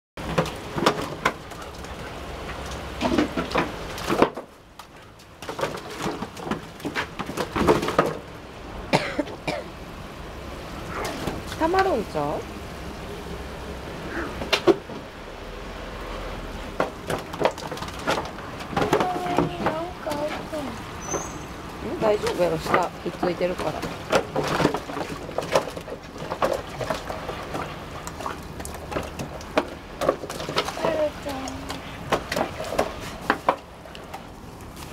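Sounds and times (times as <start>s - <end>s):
dog splashing and knocking: 0.2s - 8.3s, 10.9s - 12.3s, 16.6s - 34.3s.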